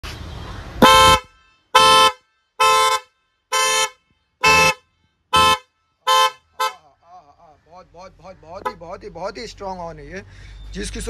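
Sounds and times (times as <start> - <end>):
dual-tone car horn blasts: 0.8 - 7.0.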